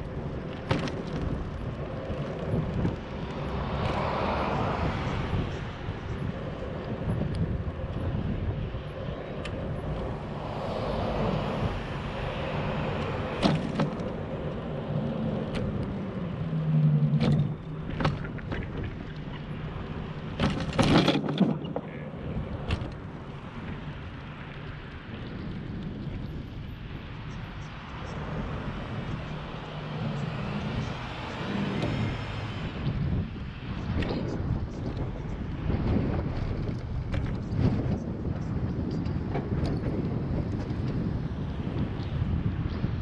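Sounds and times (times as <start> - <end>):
cars passing: 0.0 - 43.0
wind and bicycle tyre noise: 0.0 - 43.0
bicycle knocks and rattles: 0.2 - 4.1, 13.2 - 16.0, 17.1 - 19.4, 20.2 - 22.0, 22.6 - 23.8.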